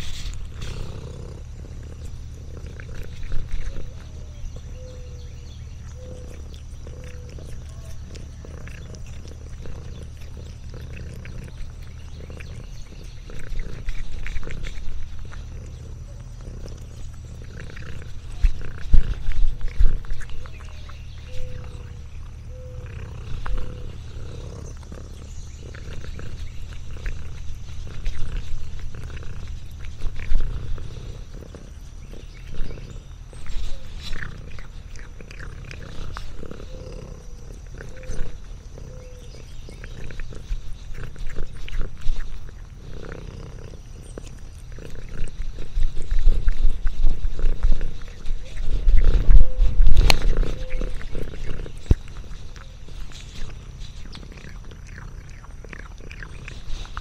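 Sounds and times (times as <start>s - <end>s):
cat purring: 0.0s - 57.0s
bumps and rustles: 45.6s - 54.1s.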